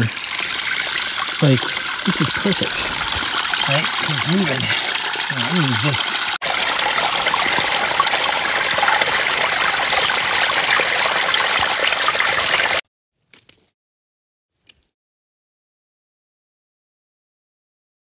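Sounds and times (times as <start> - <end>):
water trickling into plastic bag: 0.0 - 12.8.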